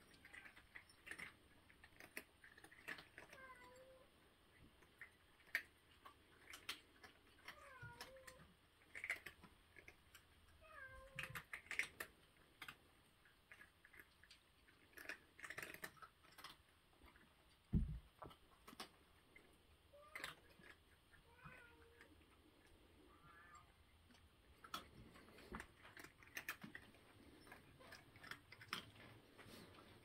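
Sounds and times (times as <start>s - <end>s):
cats crunching dry food: 0.0s - 30.0s
cat meowing: 7.4s - 8.5s, 10.6s - 11.4s, 21.3s - 22.1s, 23.1s - 23.7s.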